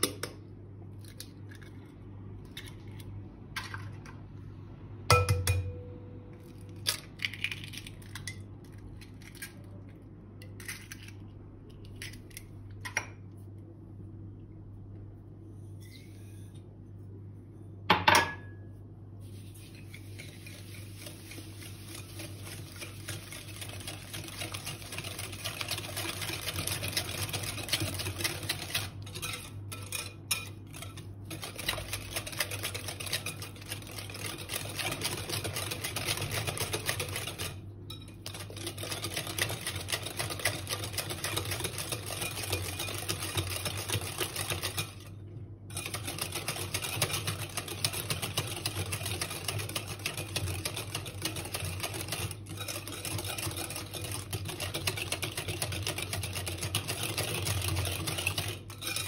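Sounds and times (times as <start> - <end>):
whisk clicking and scraping in glass bowl: 19.6 - 45.1, 45.7 - 59.0
whisk clinking against bowl: 19.8 - 45.1, 45.7 - 59.0.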